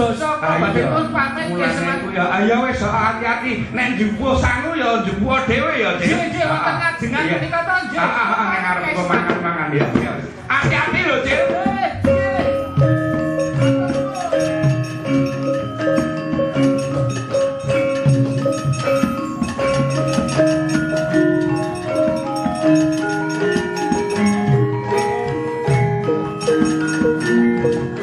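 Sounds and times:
metallophones playing melody: 0:00.0 - 0:03.4, 0:09.7 - 0:28.0.

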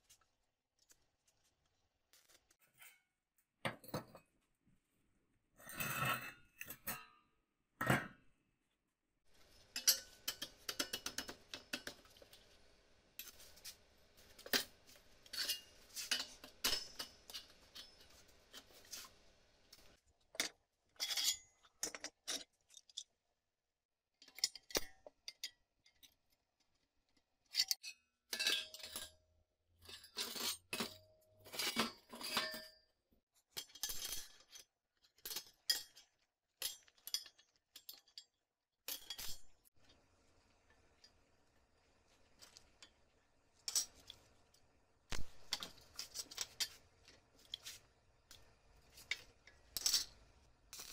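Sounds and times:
steel parts clinking on metal bench: 0:15.3 - 0:18.1, 0:49.8 - 0:50.1.

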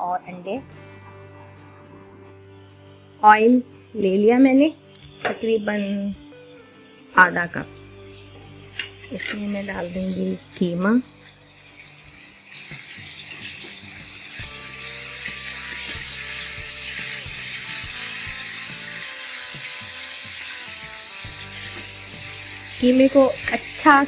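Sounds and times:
soft background music: 0:00.0 - 0:24.0
meat sizzling in hot oil: 0:07.9 - 0:24.0.

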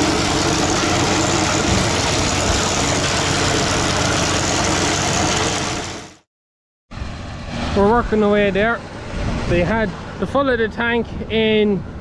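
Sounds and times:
heavy machine engine running: 0:00.0 - 0:06.2.

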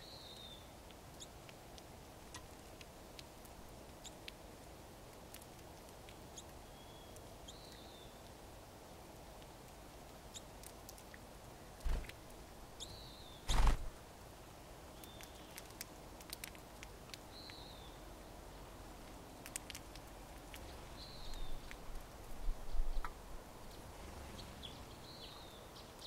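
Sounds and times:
birds cracking seeds clicks: 0:15.0 - 0:17.6, 0:19.4 - 0:22.0.

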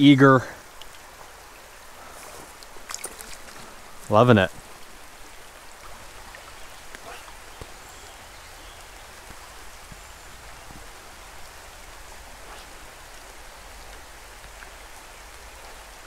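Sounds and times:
raindrops ticking: 0:00.0 - 0:01.9, 0:08.8 - 0:15.5
steady rain hiss: 0:00.0 - 0:16.0.

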